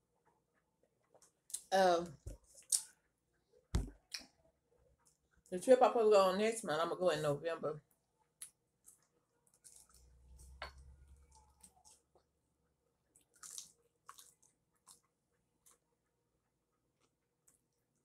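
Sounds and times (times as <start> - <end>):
wet chewing and lip-smacking: 8.4 - 12.3, 13.1 - 15.8.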